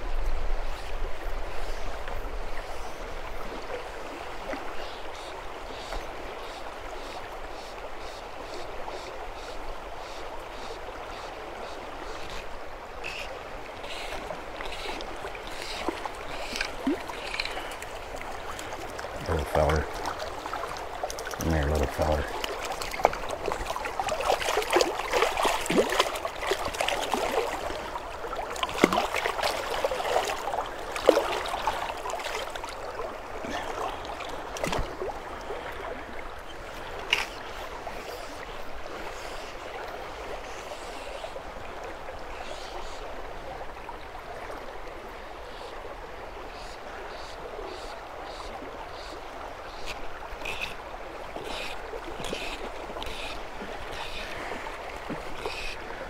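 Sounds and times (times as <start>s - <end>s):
river current flowing: 0.0s - 56.0s.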